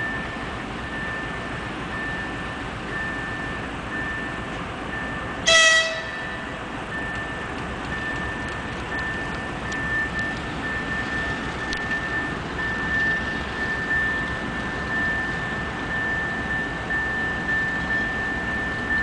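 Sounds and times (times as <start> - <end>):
diesel locomotive rumbling: 0.0 - 19.0
level crossing warning beeps: 0.0 - 19.0
train horn blast: 5.4 - 6.5.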